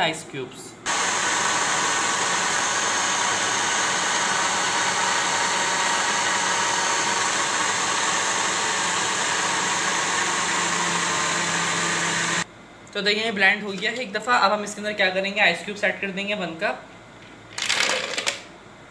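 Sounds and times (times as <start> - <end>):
blender motor running: 0.9 - 12.5.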